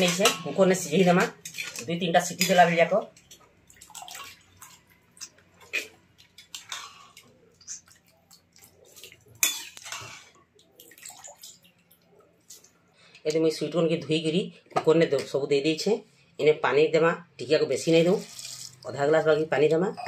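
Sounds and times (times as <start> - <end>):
water splashing and dripping: 3.1 - 12.8, 18.1 - 19.0.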